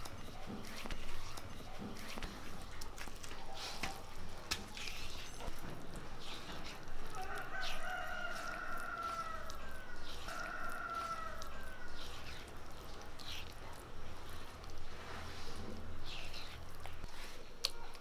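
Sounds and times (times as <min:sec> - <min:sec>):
rooster crowing: 0:07.0 - 0:12.3.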